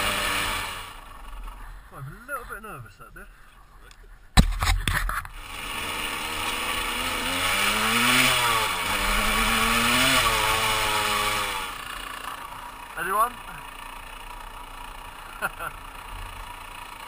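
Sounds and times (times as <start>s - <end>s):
dirt bike accelerating: 0.0s - 2.6s, 4.4s - 17.0s
sharp knock: 4.4s - 5.3s.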